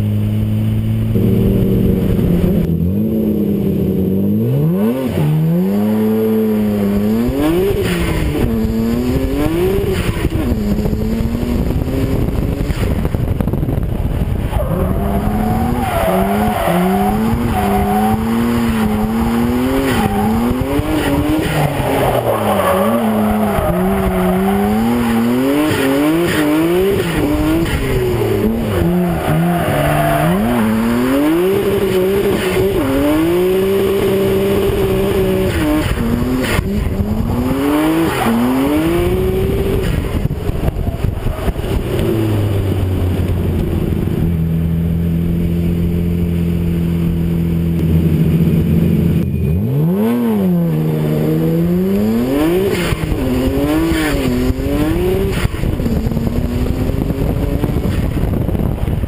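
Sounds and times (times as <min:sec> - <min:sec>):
car engine revving hard: 0:00.4 - 0:13.2, 0:14.1 - 0:44.3, 0:45.7 - 0:58.6.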